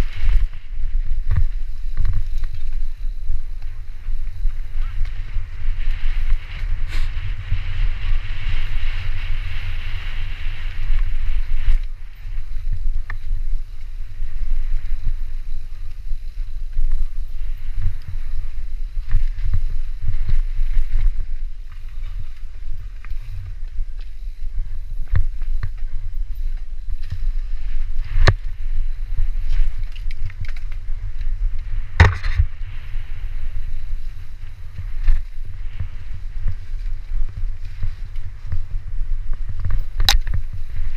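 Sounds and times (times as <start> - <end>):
low rumble: 0.0 - 40.9
wind buffeting microphone: 0.0 - 40.9
bike clattering over bumps: 29.4 - 32.8.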